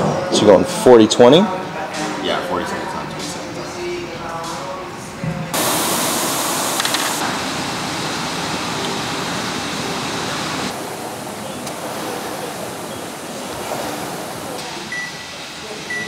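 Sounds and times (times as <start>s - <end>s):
steady rushing noise: 5.6s - 14.8s.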